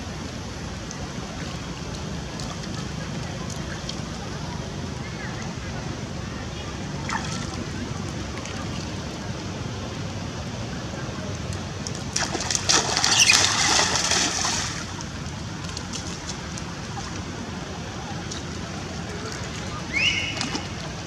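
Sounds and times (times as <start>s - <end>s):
rain on water and stone: 11.4s - 21.0s
louder splashing: 12.1s - 15.0s.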